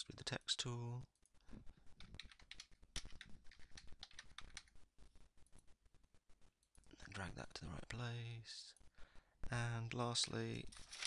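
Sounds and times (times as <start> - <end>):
typing on keyboard: 2.0 - 4.8.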